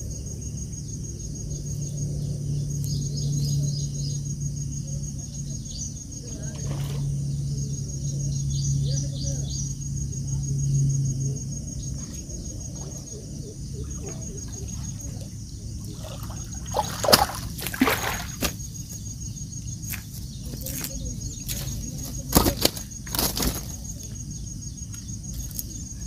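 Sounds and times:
high insect drone: 0:00.0 - 0:26.0
fish splashing in water: 0:13.8 - 0:18.8.

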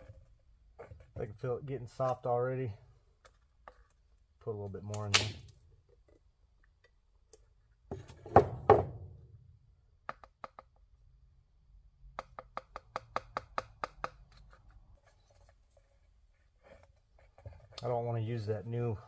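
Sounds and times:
knocks: 0:07.9 - 0:09.2.

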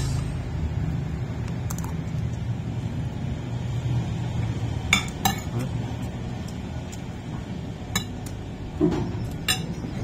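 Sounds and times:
metal spoon clinking on plate: 0:09.3 - 0:09.8.

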